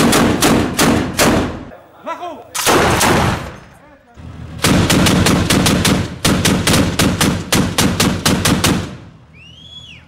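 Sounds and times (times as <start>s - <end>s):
automatic weapon firing: 0.0s - 1.6s, 2.6s - 3.6s, 4.6s - 9.0s.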